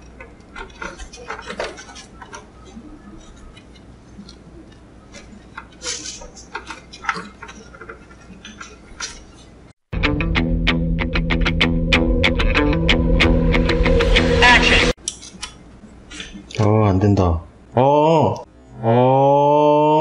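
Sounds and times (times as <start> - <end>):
cables rustling: 0.0 - 9.8.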